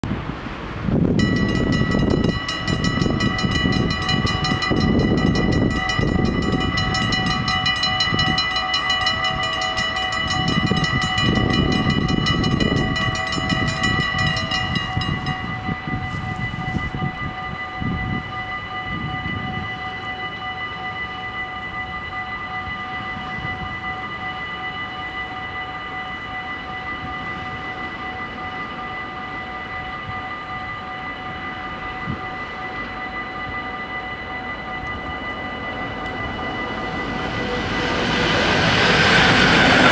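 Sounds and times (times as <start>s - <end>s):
level crossing bells ringing: 1.2s - 39.9s
low rumble: 36.0s - 39.9s.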